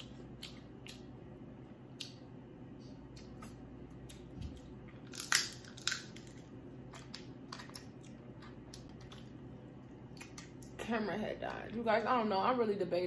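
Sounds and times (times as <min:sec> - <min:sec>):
crab shells cracking: 0:05.0 - 0:09.4.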